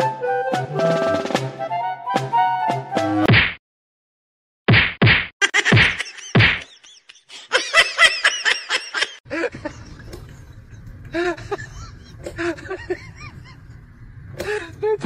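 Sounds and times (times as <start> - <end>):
high-pitched laughter: 5.4 - 13.8
low steady hum: 9.3 - 15.0.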